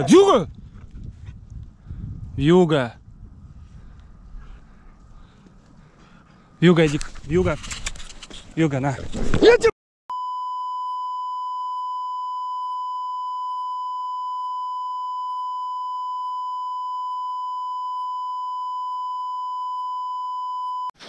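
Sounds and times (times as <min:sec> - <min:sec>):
steady electronic beep: 0:10.1 - 0:21.0.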